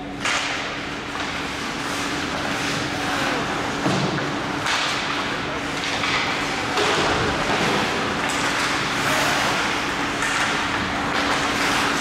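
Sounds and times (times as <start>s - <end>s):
skates scraping ice: 1.2s - 3.6s, 7.4s - 12.0s.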